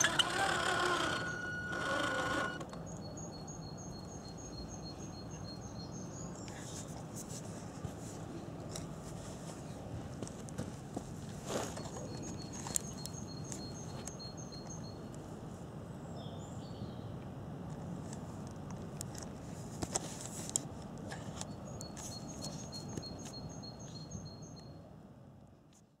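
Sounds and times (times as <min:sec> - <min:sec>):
bird chirping: 0:00.0 - 0:06.5, 0:11.8 - 0:15.1, 0:21.5 - 0:24.8.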